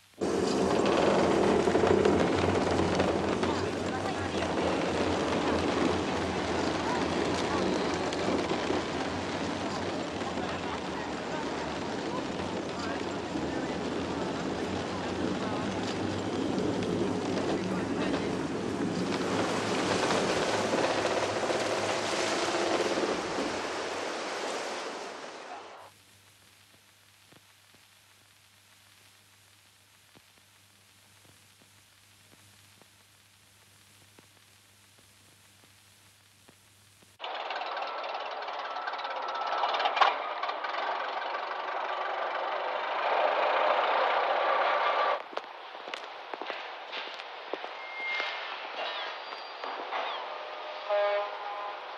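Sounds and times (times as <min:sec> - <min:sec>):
faint hiss: 0:00.0 - 0:37.2
old car engine driving past: 0:37.2 - 0:45.2.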